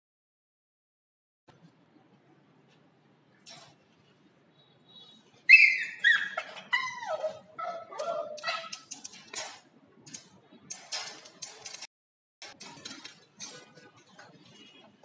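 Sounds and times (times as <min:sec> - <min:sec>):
puppy whining: 0:05.5 - 0:08.9.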